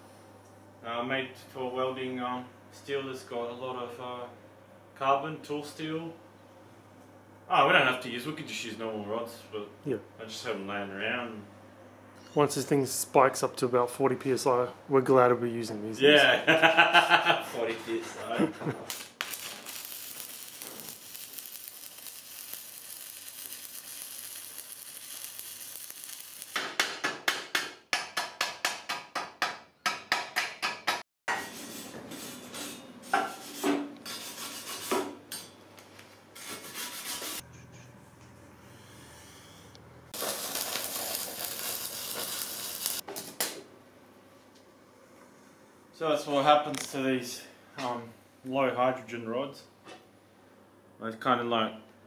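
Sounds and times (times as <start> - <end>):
welding arc hissing: 18.8 - 26.7, 40.2 - 43.0.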